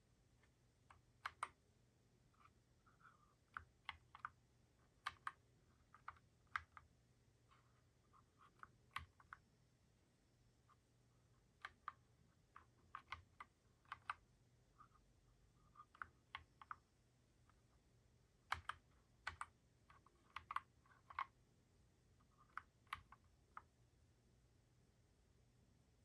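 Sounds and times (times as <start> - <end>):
mechanical keyboard key clicks: 18.5 - 19.5.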